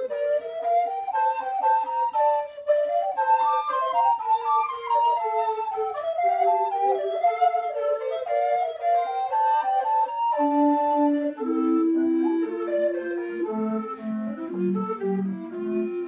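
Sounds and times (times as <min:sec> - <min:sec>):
recorder ensemble playing: 0:00.0 - 0:16.0.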